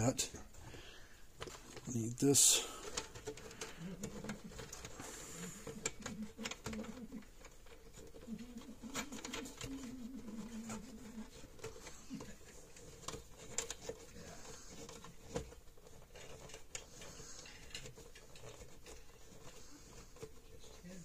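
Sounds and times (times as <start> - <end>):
clicks and rustles of plastic parts: 0.0 - 21.0.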